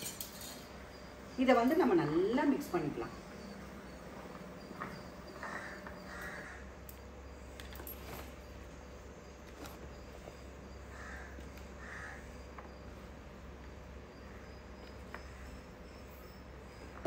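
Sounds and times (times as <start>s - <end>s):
bird calls: 2.5s - 8.3s, 9.6s - 12.9s.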